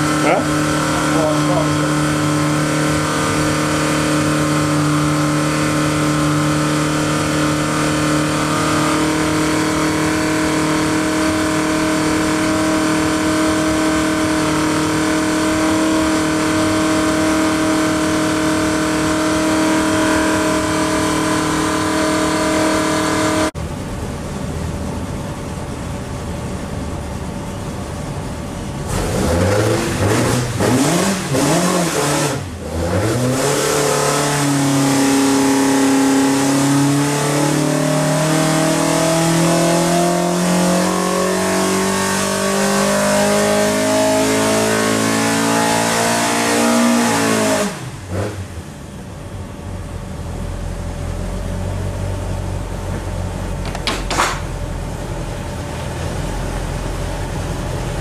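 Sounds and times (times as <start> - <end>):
engine revving: 0.0 - 23.6, 28.8 - 48.7
engine running on dyno: 0.0 - 58.0.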